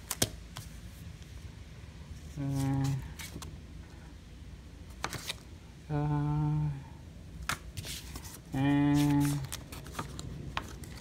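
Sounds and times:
paper brochures being shuffled: 2.2s - 3.5s, 4.9s - 5.4s, 7.5s - 11.0s.

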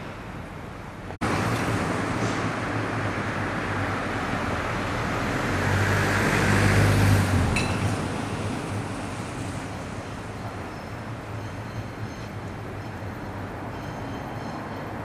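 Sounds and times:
road traffic noise: 0.0s - 15.0s
vehicle engine passing: 1.2s - 8.9s.

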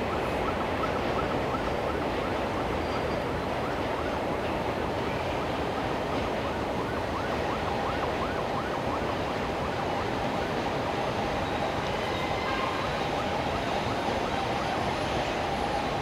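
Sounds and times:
siren yelping: 6.4s - 10.3s.

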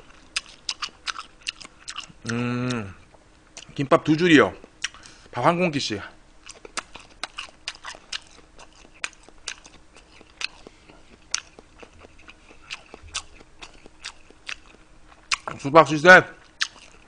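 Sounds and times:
mouth chewing clicks and smacks: 0.1s - 2.8s, 4.6s - 5.1s, 6.4s - 15.6s, 16.4s - 17.0s.

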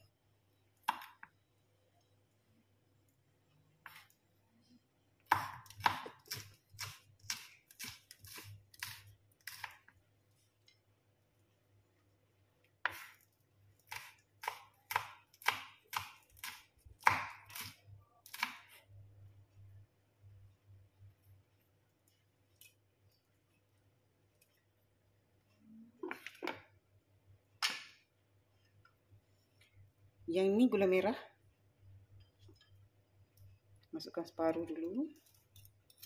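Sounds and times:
knife chopping on wooden board: 5.3s - 9.8s, 13.9s - 18.7s.

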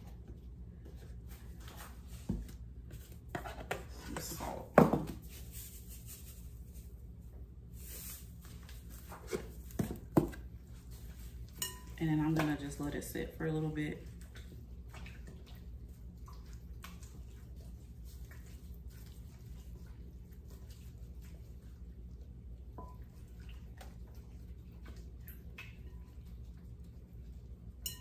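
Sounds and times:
wet squishes: 14.0s - 27.8s.

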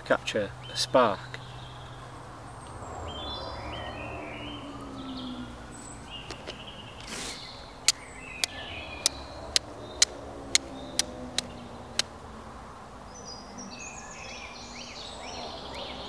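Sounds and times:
small birds chirping: 0.0s - 16.0s
flint struck with steel striker: 7.9s - 12.1s.

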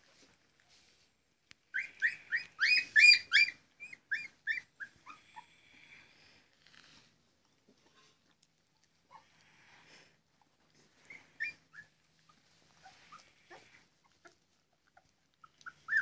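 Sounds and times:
puppies squeaking and whimpering: 1.6s - 5.8s, 9.0s - 16.0s.

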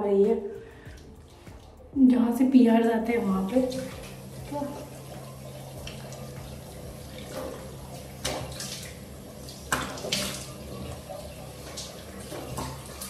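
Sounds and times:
tap running into sink: 5.8s - 13.0s
water splashing on face: 5.8s - 13.0s.

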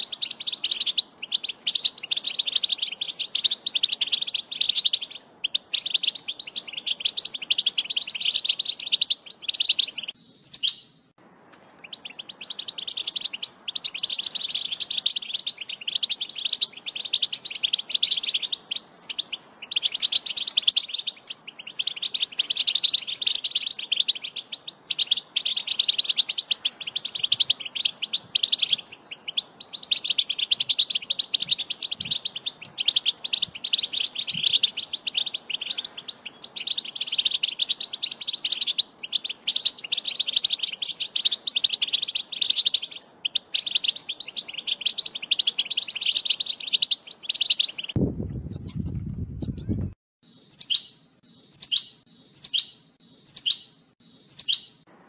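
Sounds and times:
finch song twittering: 0.0s - 54.9s.

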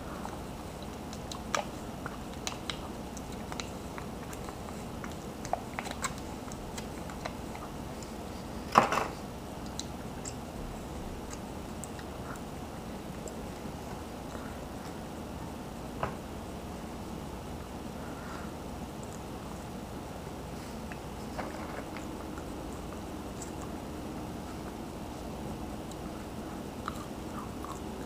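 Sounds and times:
man eating with lip smacks: 9.2s - 15.1s, 19.0s - 19.8s, 20.7s - 28.0s.

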